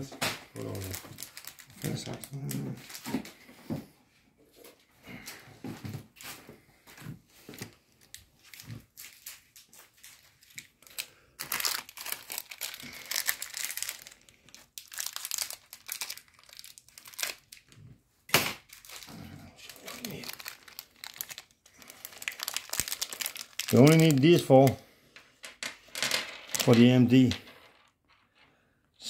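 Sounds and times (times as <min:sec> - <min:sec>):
plastic bag crinkling: 0:00.6 - 0:03.1, 0:08.0 - 0:17.9, 0:18.6 - 0:24.8, 0:26.3 - 0:27.3.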